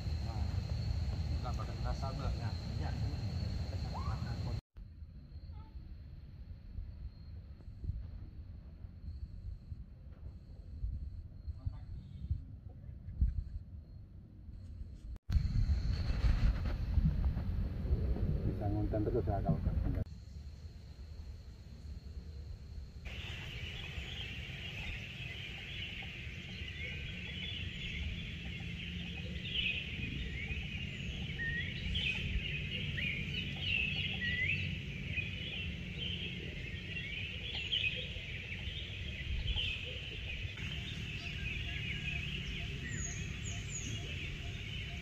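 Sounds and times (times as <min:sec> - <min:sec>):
birds chirping: 0:00.0 - 0:04.6, 0:23.1 - 0:45.0
steady low rumble: 0:15.3 - 0:20.1.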